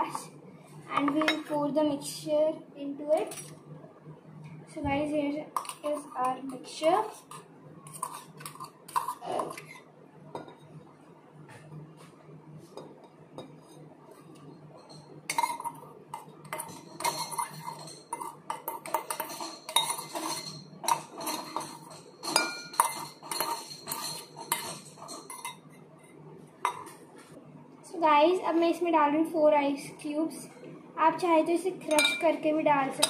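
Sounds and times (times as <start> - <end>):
metal spoon scraping and clinking: 5.6 - 9.9, 14.4 - 26.9.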